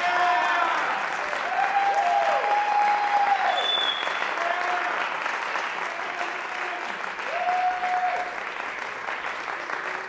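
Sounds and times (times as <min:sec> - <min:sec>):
crowd whooping: 0:00.0 - 0:04.2, 0:07.2 - 0:08.4
audience applauding: 0:00.0 - 0:10.0.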